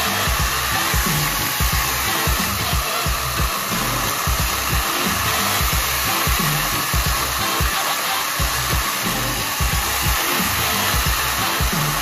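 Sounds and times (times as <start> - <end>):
background music with beat: 0.0 - 12.0
chainsaws cutting logs: 0.0 - 12.0.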